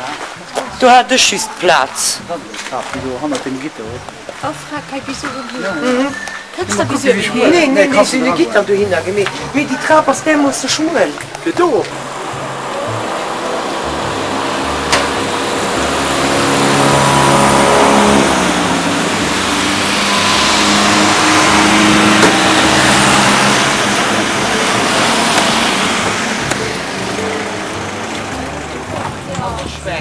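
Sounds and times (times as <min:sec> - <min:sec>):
cars driving past: 0:06.4 - 0:30.0.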